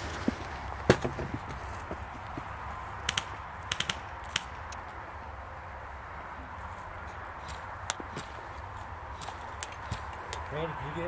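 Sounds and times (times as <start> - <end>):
airsoft gunfire snaps: 3.0 - 4.5.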